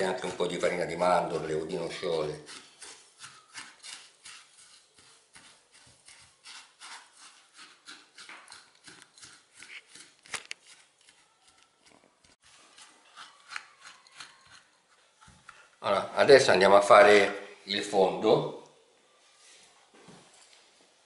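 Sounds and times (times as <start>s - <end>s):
spatula scraping in glass bowl: 0.0s - 11.2s.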